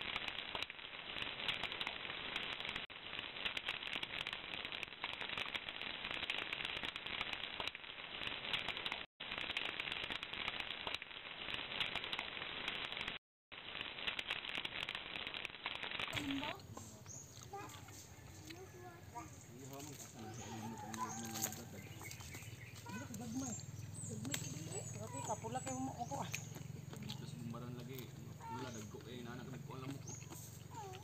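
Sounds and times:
wood fire crackling: 0.0 - 31.0.

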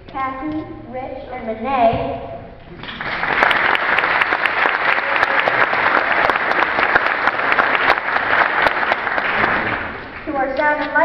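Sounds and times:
audience applauding: 2.8 - 10.3.

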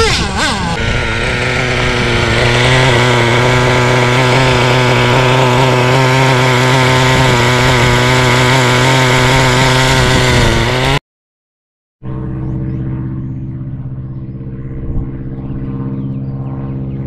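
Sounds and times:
small two-stroke engine idling: 0.0 - 11.0.

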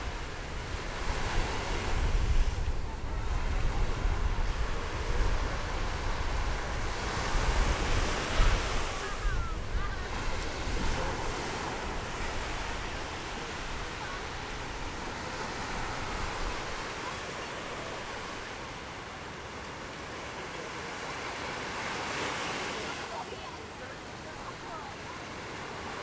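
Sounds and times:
wind buffeting microphone: 0.0 - 16.9
waves washing onto beach: 0.0 - 26.0.

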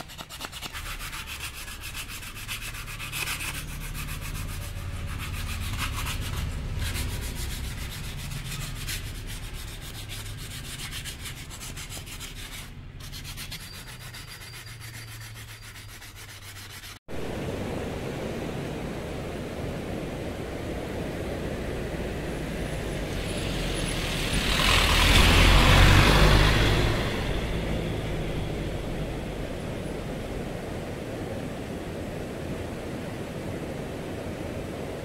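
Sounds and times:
wood being sanded: 0.0 - 17.0.

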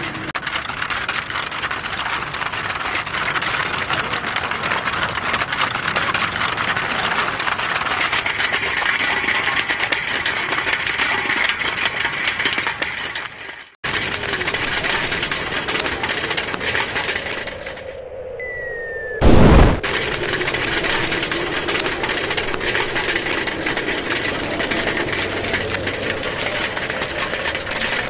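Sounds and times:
film projector clatter and whir: 0.0 - 17.9, 19.8 - 28.0
high steady whine: 17.0 - 24.5.

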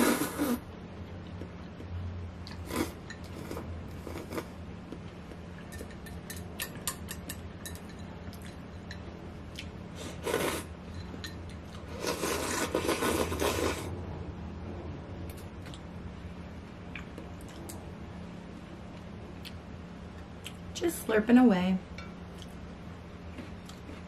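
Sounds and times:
person slurping noodles: 0.0 - 0.6, 2.6 - 4.6, 10.0 - 10.7, 11.9 - 13.9.

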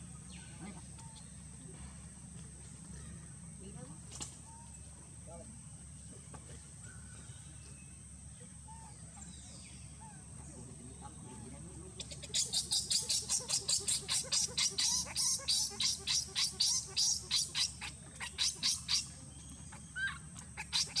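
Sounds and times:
baby monkey crying: 12.0 - 19.1, 19.8 - 21.0.

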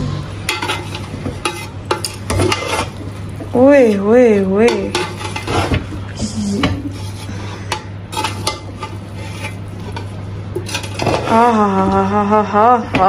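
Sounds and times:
spoon scraping rice in a pot: 0.5 - 5.9, 6.6 - 11.4.

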